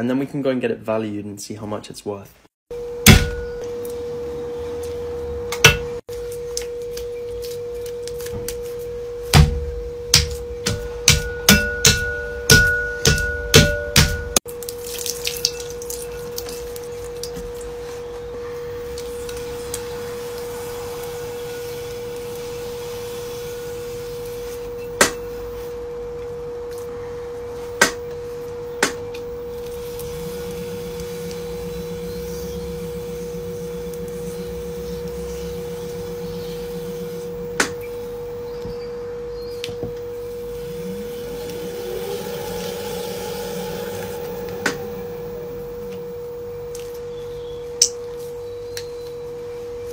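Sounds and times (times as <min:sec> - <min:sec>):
pottery wheel motor whine: 0:02.7 - 0:14.5, 0:16.0 - 0:49.9
wet clay worked by hand: 0:14.0 - 0:18.3
lower whine: 0:16.0 - 0:49.9
rising tone: 0:17.8 - 0:25.6, 0:28.2 - 0:47.8.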